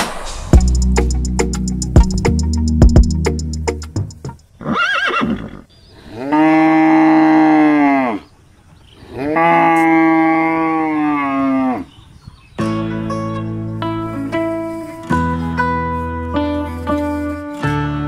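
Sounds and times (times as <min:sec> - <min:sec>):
cow mooing: 0:09.1 - 0:11.9
guitar music: 0:12.6 - 0:18.0.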